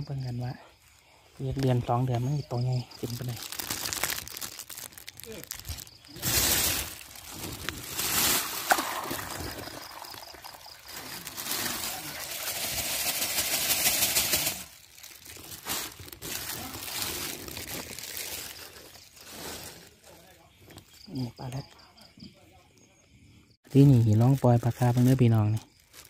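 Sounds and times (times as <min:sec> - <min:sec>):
water pouring into pond: 0:03.0 - 0:19.6
water trickle: 0:07.9 - 0:13.2.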